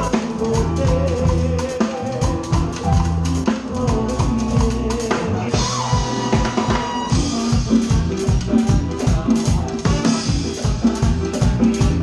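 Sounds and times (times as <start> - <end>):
live band playing latin dance music: 0.0 - 12.0
drum kit hits: 2.1 - 12.0.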